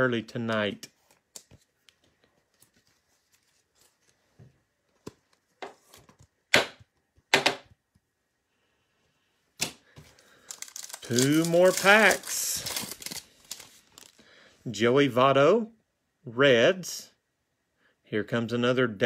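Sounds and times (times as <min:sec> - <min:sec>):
faint rustling of cards: 0:00.1 - 0:06.4, 0:08.9 - 0:14.5.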